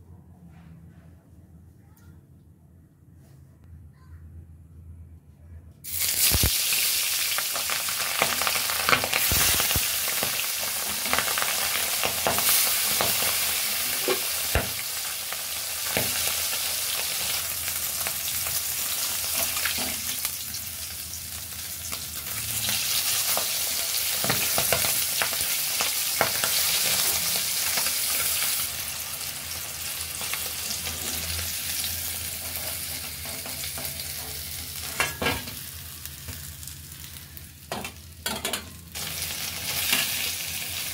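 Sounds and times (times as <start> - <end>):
fish sizzling in hot oil: 5.9 - 38.3, 38.9 - 40.9.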